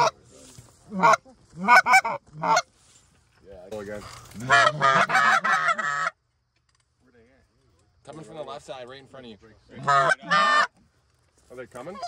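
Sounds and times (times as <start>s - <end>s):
goose honking and clucking: 0.9s - 2.8s, 4.3s - 6.2s, 9.8s - 10.8s.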